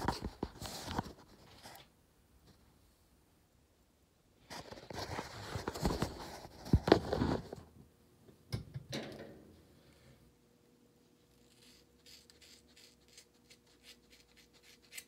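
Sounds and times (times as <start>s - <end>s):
phone handling rustling and scraping: 4.5s - 7.6s.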